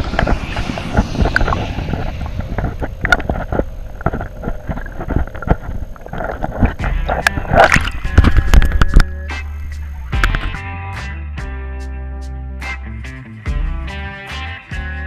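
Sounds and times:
muffled underwater sloshing: 0.0 - 10.1
water rush: 0.0 - 10.3.

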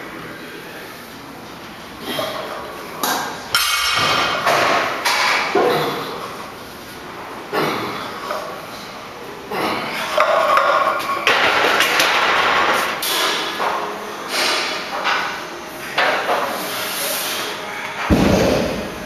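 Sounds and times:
heavy low thud: 18.1 - 19.0.

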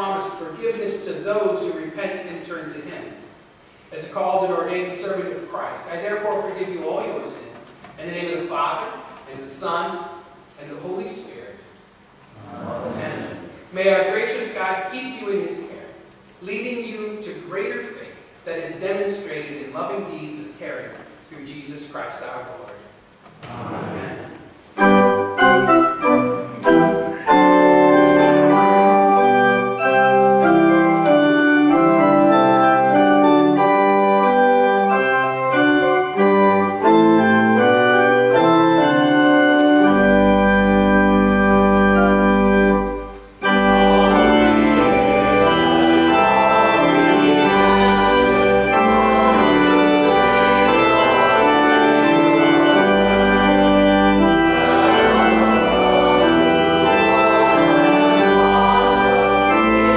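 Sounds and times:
deep organ pedal bass notes: 0.0 - 2.9, 12.2 - 15.8, 23.4 - 59.9
church organ playing a hymn: 0.0 - 11.6, 23.5 - 59.9.

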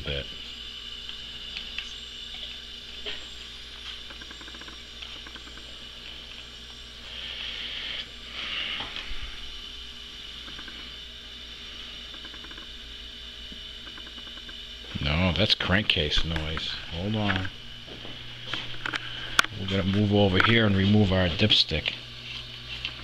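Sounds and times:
compressed air hissing: 7.0 - 9.6.

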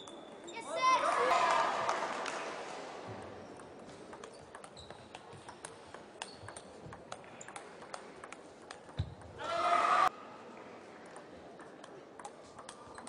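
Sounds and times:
table tennis ball clicking: 3.6 - 9.3, 11.1 - 13.0.

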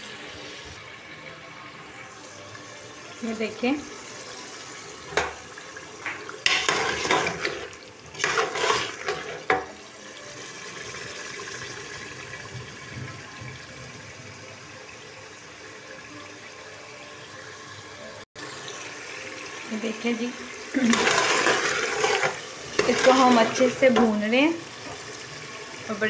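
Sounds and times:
food sizzling in a pot: 0.0 - 13.4, 14.4 - 26.0
metal spatula scraping a pot: 6.4 - 9.7, 20.8 - 24.3.

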